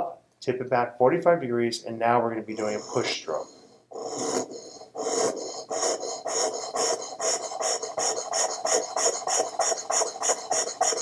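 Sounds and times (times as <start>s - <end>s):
blade scraping sharpening stone: 2.6s - 11.0s.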